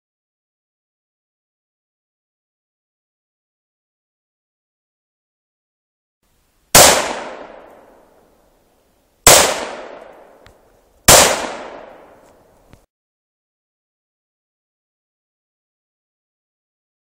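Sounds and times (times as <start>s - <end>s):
rifle shots echoing: 6.7s - 8.2s, 9.3s - 10.4s, 11.1s - 12.3s.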